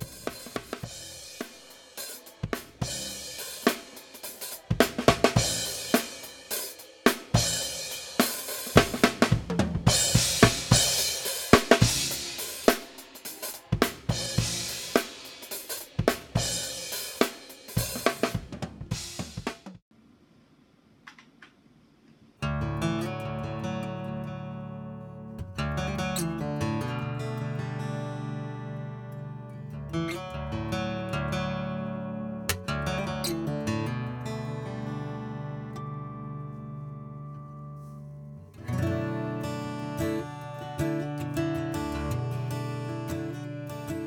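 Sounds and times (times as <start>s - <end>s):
drum kit playing: 0.0s - 19.8s.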